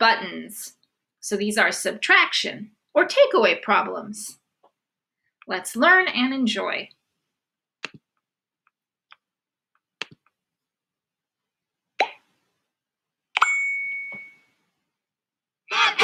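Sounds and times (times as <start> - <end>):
bright ringing ding: 13.4 - 14.5.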